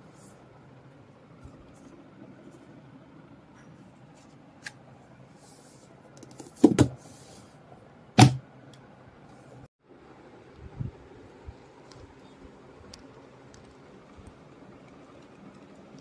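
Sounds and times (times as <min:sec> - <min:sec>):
book knocking on tabletop: 0:06.6 - 0:07.0, 0:08.2 - 0:08.4.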